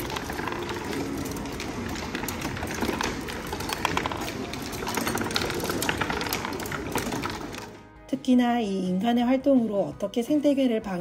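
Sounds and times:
irregular clicks and clatter: 0.0s - 7.8s.

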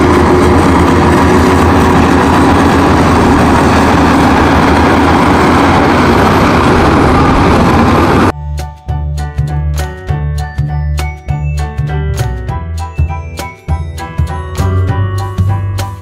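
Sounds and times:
bulldozer diesel engine under load: 0.0s - 8.4s.

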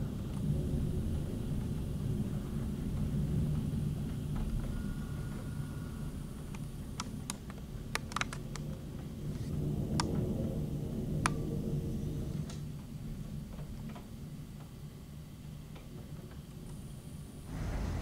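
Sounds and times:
heavy rain downpour: 0.0s - 18.0s
sharp clicks: 7.0s - 8.7s
gusty wind: 7.6s - 13.6s, 17.3s - 18.0s.

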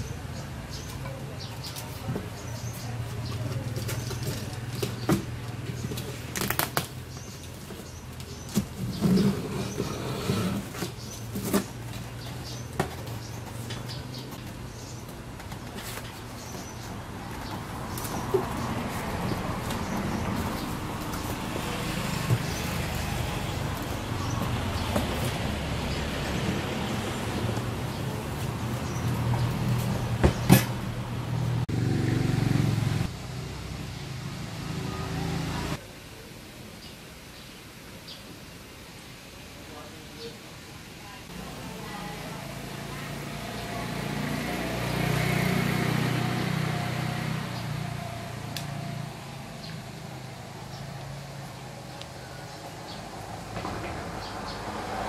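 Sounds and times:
vehicle engine humming: 10.6s - 35.8s.

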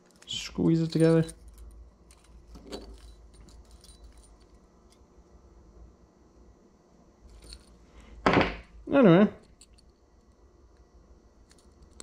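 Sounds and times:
small metallic clicks: 10.8s - 12.0s.

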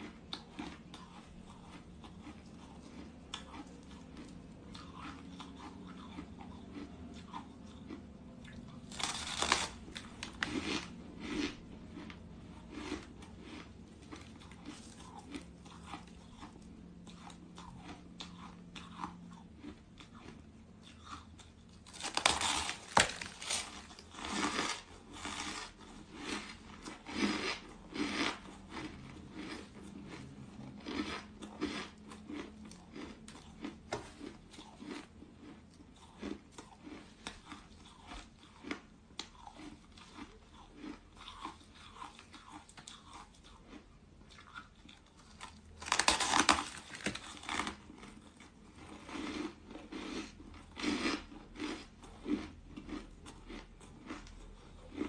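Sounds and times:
person crunching ice: 8.8s - 16.5s, 21.8s - 30.2s, 45.2s - 54.2s.

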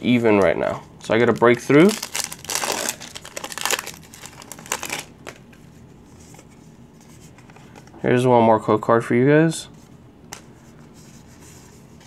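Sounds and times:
foil wrapper crinkling: 1.0s - 5.4s.

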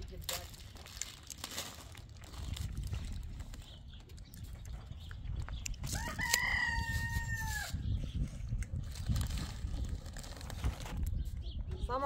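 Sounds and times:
rooster crowing: 5.9s - 7.8s.

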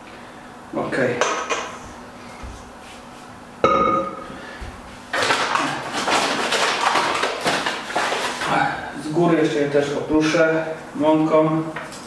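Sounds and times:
metal bowl set down with clang: 3.6s - 4.2s.

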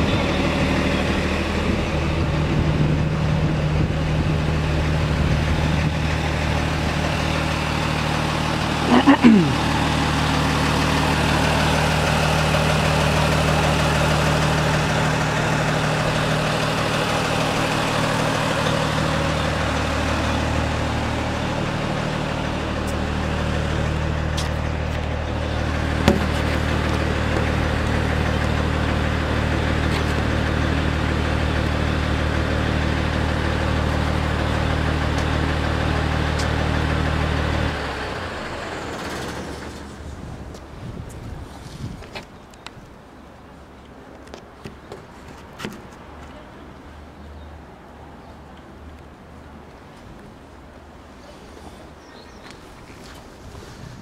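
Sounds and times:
fire truck engine idling: 0.0s - 40.8s.

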